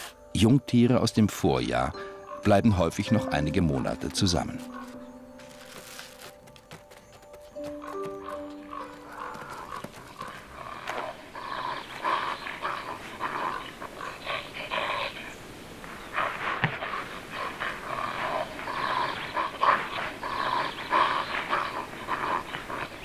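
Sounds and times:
wolverines calling: 7.6 - 23.0.

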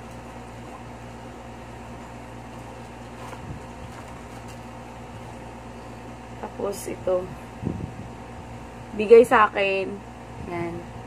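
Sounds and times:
cooling appliance humming: 0.0 - 11.0
rustling in a bag: 2.6 - 5.4.

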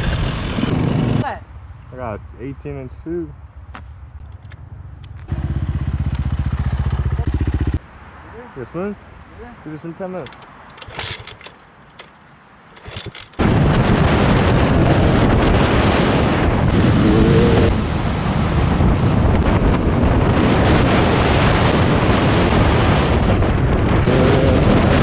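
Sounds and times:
dirt bike engine running: 5.3 - 7.8, 12.7 - 13.7
heavy wind buffeting microphone: 10.2 - 25.0.

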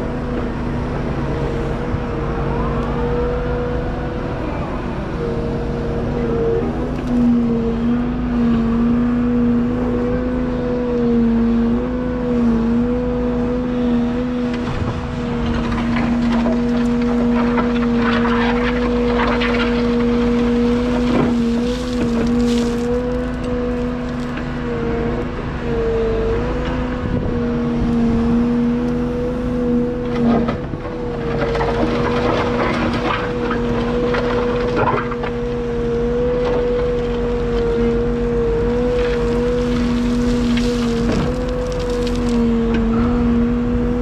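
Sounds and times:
excavator engine droning: 0.0 - 44.0
blade scraping through soil: 15.5 - 23.2.

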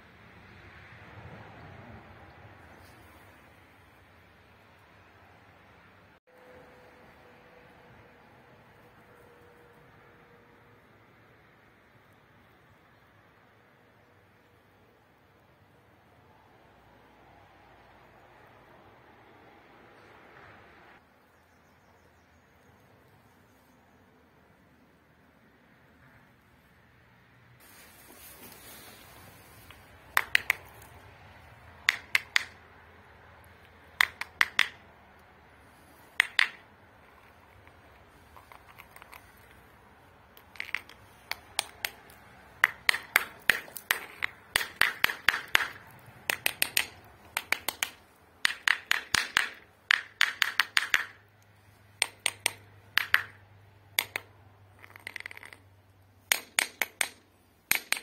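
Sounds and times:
hammer tapping on stone: 29.7 - 30.8, 31.9 - 32.6, 34.0 - 34.8, 36.2 - 36.6, 40.4 - 51.2, 52.0 - 53.4, 54.0 - 55.6, 56.3 - 58.0.

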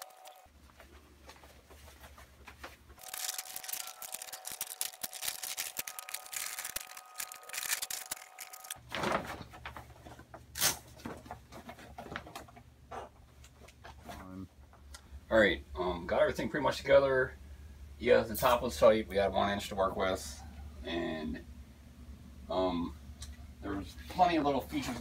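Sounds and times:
fabric rustling and crinkling: 0.6 - 10.0.

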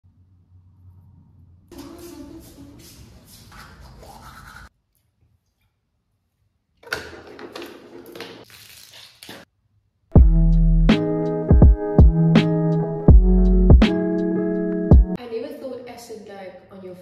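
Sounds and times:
toothbrush scrubbing teeth: 1.8 - 5.1
lo-fi beat with bass and drums: 10.2 - 15.2.

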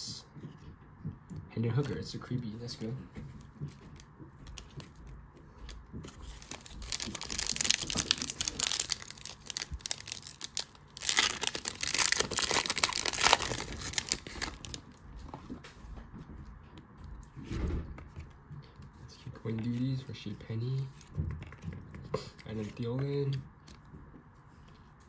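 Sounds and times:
plastic wrapper crinkling and tearing: 5.7 - 15.0.

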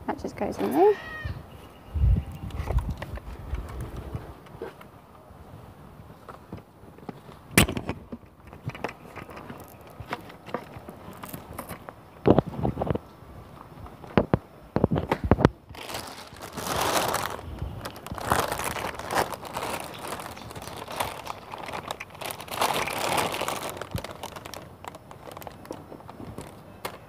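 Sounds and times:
plastic bag rustling: 14.8 - 27.0.

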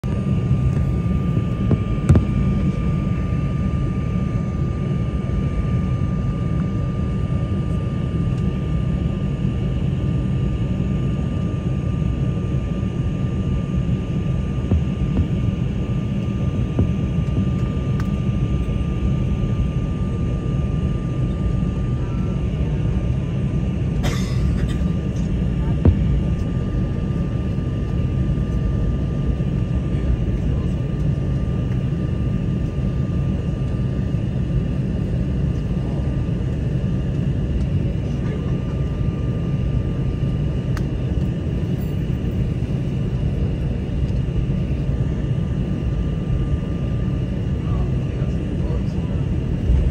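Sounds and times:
high whine: 0.0 - 6.0, 13.6 - 20.1
jet engines rumbling: 0.0 - 49.9.

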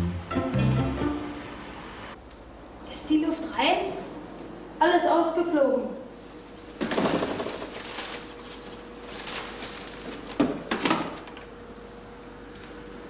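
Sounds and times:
faint steady hum: 0.0 - 13.0
bicycle knocks and rattles: 6.8 - 8.2, 10.0 - 11.5.

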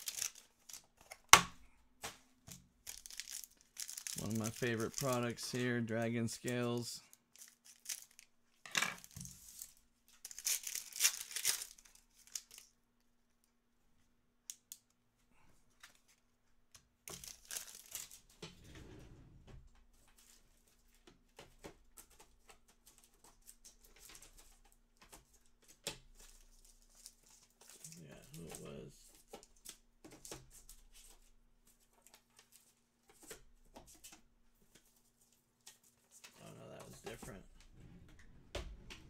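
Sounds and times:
wrappers crinkling: 0.0 - 1.1, 2.8 - 8.3, 9.0 - 12.7, 17.1 - 18.3
card packs being torn open: 0.0 - 1.3, 2.8 - 5.5, 7.3 - 8.3, 9.0 - 12.7, 17.1 - 18.2
cards rustling and clicking: 0.0 - 12.8, 17.1 - 18.3, 21.4 - 37.3.

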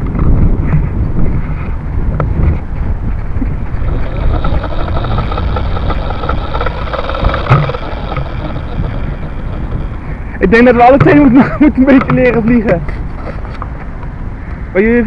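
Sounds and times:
handling and wind rumble: 0.0 - 15.0
drone propellers whirring: 2.1 - 13.7.

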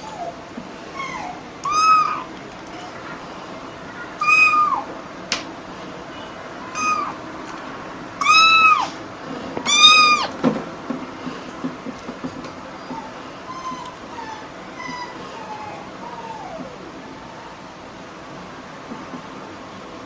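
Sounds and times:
kitten meowing: 1.0 - 2.3, 4.2 - 4.9, 6.7 - 7.2, 8.2 - 9.0, 9.6 - 10.4.

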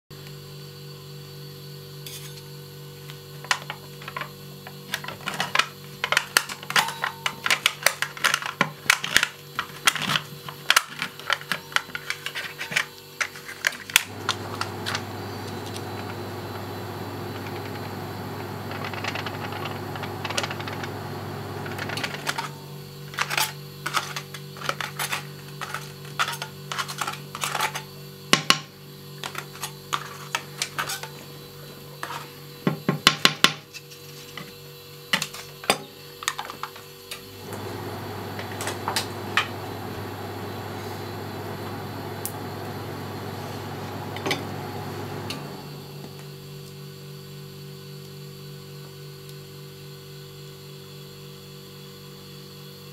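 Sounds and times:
steady low hum: 14.1 - 23.2.

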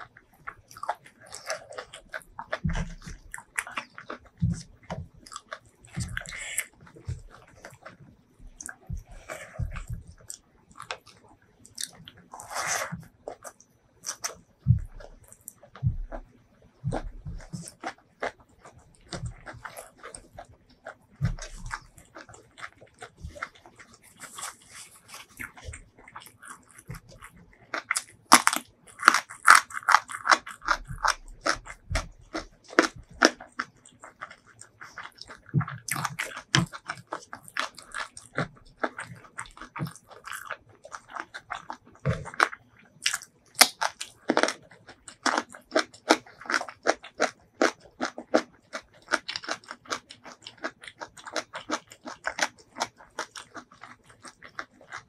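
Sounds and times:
chewing with crisp crunches: 0.0 - 55.0.

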